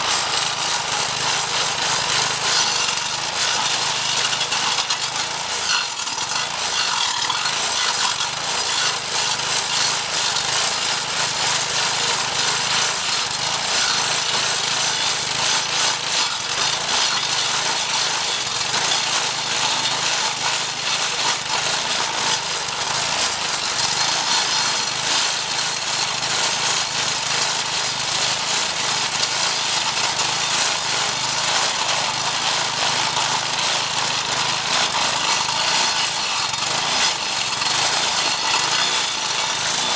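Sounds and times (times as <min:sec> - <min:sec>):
blade grinding stump: 0:00.0 - 0:39.9.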